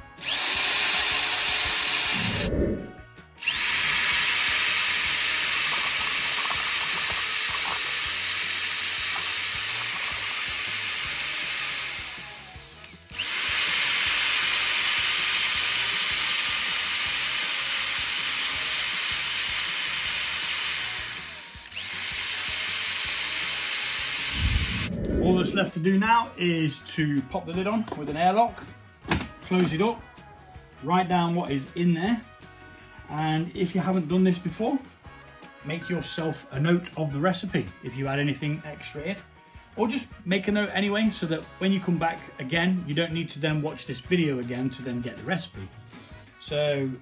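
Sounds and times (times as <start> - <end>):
electric drill mixing liquid: 0.2 - 25.0.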